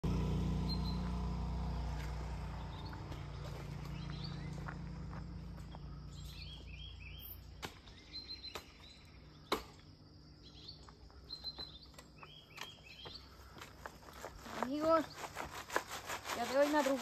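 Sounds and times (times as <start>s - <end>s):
faint bird chirps: 0.6s - 1.1s, 5.5s - 9.6s, 10.3s - 13.9s.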